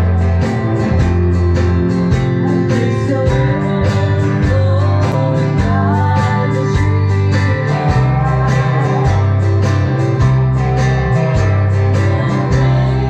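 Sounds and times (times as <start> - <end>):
drum kit beat: 0.0 - 13.0
electric guitars: 0.0 - 13.0
woman singing into a microphone: 2.4 - 10.0, 11.3 - 13.0.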